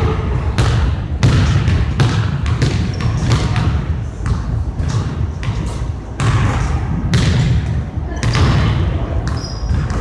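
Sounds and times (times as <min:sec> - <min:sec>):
basketball bouncing on hardwood: 0:00.6 - 0:05.6.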